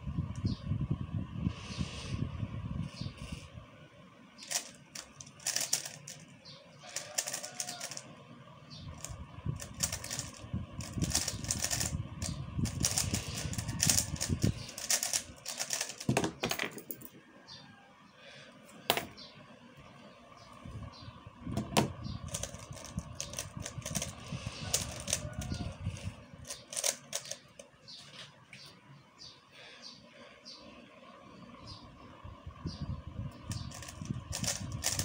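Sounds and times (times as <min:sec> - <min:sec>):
puzzle cube clicking: 0:04.5 - 0:06.3, 0:06.9 - 0:08.0, 0:09.0 - 0:16.3, 0:26.5 - 0:27.6, 0:33.7 - 0:35.0.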